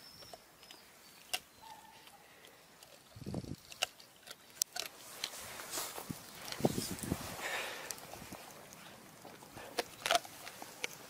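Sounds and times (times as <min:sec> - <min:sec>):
sharp wet clicks: 0:00.0 - 0:05.3, 0:07.8 - 0:11.0.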